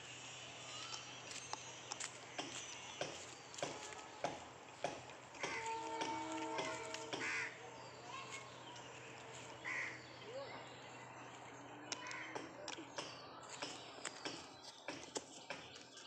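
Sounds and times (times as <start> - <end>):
crows cawing: 5.4 - 7.6, 9.6 - 10.1, 12.0 - 12.5.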